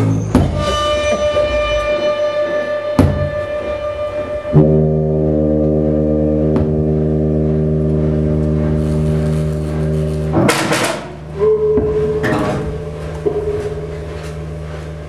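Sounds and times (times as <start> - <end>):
low organ-like drone: 0.0 - 15.0
held high tone: 11.0 - 15.0.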